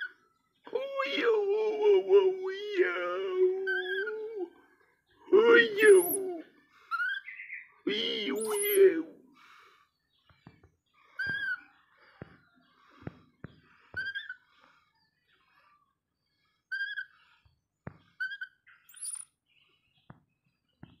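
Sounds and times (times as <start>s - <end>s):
baby monkey high-pitched calls: 3.7s - 4.2s, 5.8s - 8.9s, 11.0s - 12.3s, 13.7s - 14.6s, 16.7s - 17.4s, 18.2s - 19.2s.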